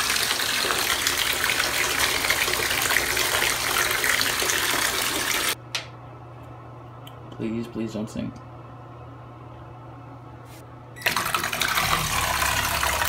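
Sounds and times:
tap water gushing into tub: 0.0s - 5.6s, 11.0s - 13.0s.

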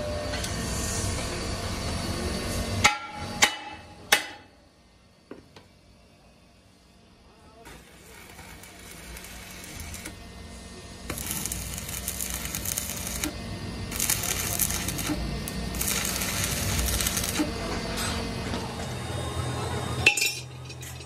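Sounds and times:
welding arc crackling hiss: 7.6s - 17.7s.

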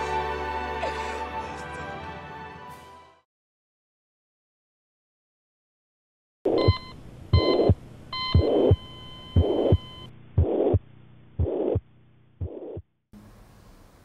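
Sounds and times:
high electronic beeps: 6.5s - 10.8s
muffled heartbeat thumps: 6.5s - 12.9s.

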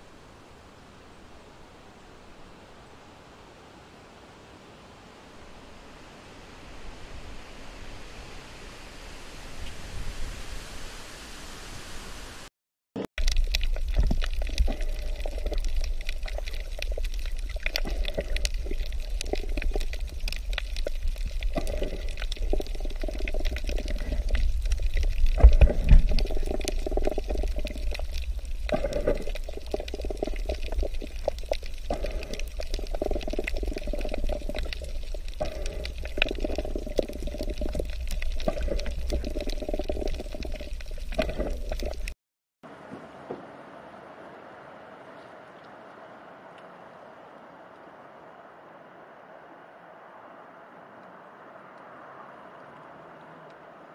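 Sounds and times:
underwater low rumble: 13.2s - 42.1s
water sloshing and surging: 13.2s - 42.2s.

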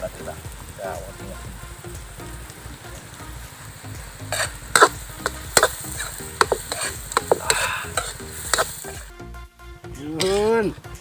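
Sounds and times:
low sizzle: 0.0s - 9.4s
spatula scraping metal wok: 3.7s - 9.1s.

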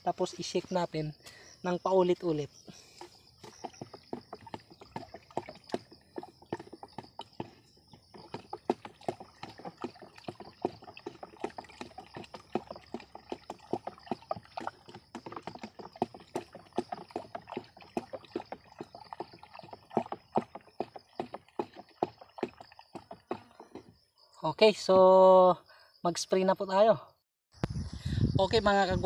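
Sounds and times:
liquid sloshing: 2.8s - 24.0s.

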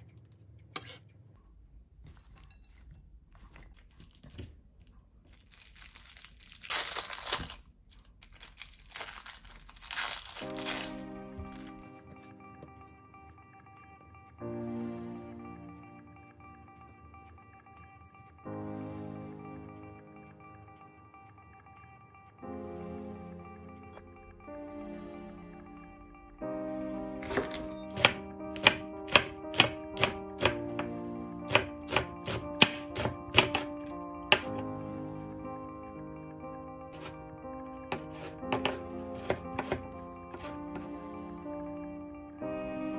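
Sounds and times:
plastic wrapper crinkling and tearing: 3.7s - 11.8s
background music: 8.5s - 42.9s
knife chopping on wooden board: 27.2s - 30.6s, 31.5s - 33.7s, 34.3s - 34.5s, 37.9s - 40.9s.

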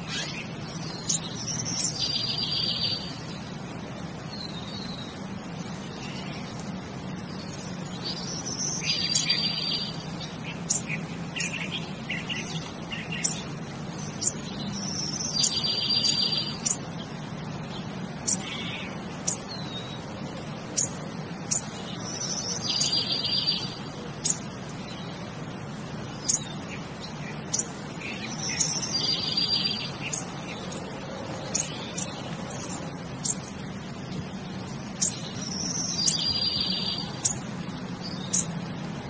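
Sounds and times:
bird song whistle and trill: 0.0s - 3.4s, 7.3s - 13.4s, 14.0s - 16.8s, 20.8s - 25.1s, 26.2s - 30.8s, 35.0s - 37.4s.

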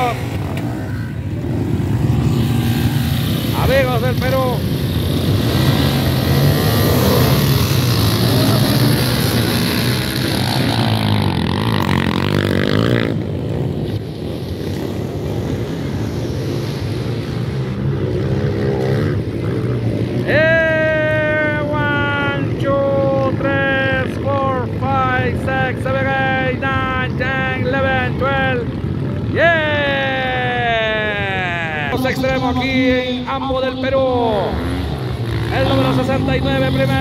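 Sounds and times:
dirt bike engines revving: 0.0s - 37.0s
loud drawn-out voice: 29.4s - 34.7s.

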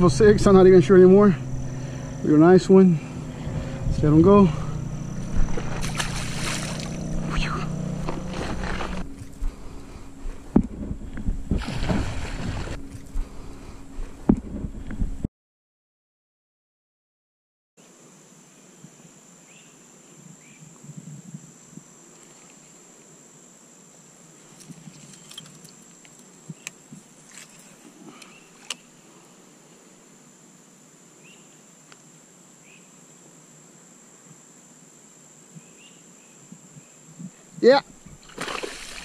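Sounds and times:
high-pitched insect drone: 0.0s - 14.1s.

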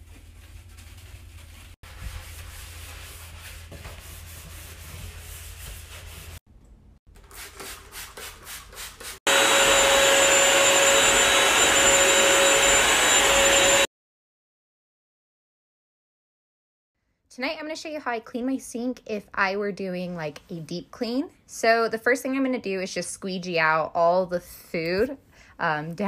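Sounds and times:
sponge scrubbing a bathtub: 0.0s - 6.4s, 7.1s - 11.7s
floor cleaner motor whining: 9.3s - 13.9s.

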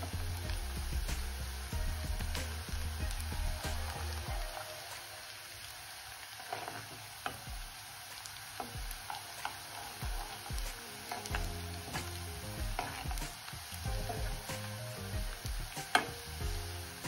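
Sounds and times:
onion and garlic sizzling in pan: 0.0s - 17.0s
steel spoon scraping a pan: 9.1s - 13.4s.

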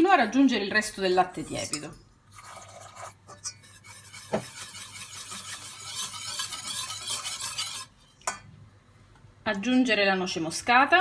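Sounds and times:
whisk scraping in a pot: 1.0s - 8.1s
milk pouring: 2.3s - 3.3s
whisk knocking against pot: 3.4s - 7.8s.

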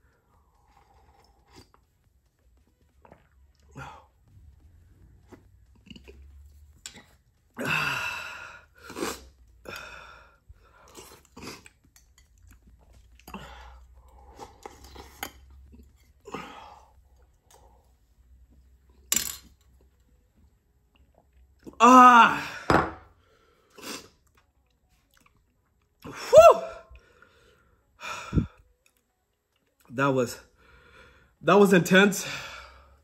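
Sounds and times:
person slurping soup: 8.6s - 9.4s.

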